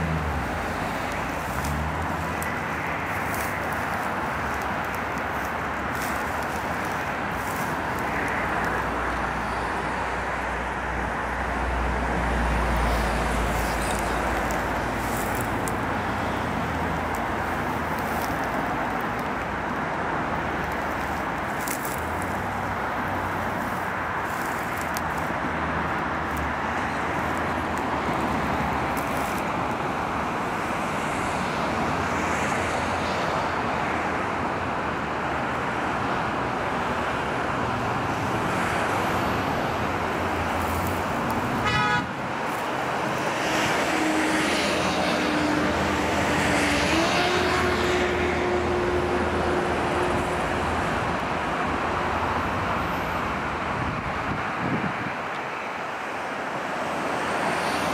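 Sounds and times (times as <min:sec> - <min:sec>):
road traffic roar: 0:00.0 - 0:57.9
held horn-like tone: 0:41.6 - 0:42.2.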